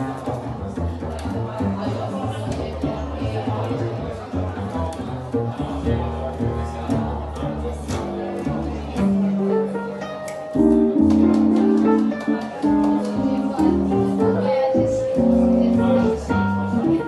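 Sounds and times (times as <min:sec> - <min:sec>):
plucked double bass: 0:00.0 - 0:17.0
piano chords and melody: 0:09.0 - 0:17.0.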